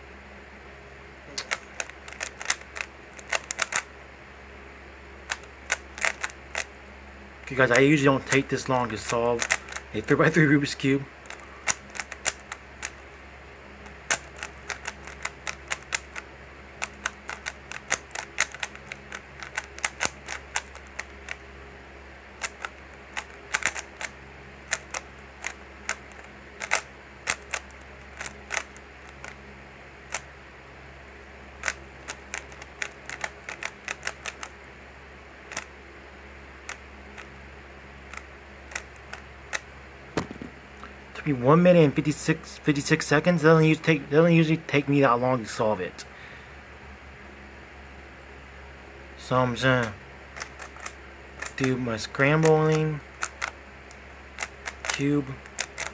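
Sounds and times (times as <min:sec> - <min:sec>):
low steady hum: 0:00.0 - 0:55.9
plastic cube clicks: 0:01.4 - 0:03.9, 0:05.3 - 0:06.7, 0:09.0 - 0:10.1, 0:11.2 - 0:13.0, 0:13.8 - 0:16.2, 0:16.8 - 0:21.4, 0:22.4 - 0:24.1, 0:24.7 - 0:29.4, 0:31.6 - 0:34.5, 0:50.4 - 0:51.8, 0:53.2 - 0:53.6, 0:54.4 - 0:55.9.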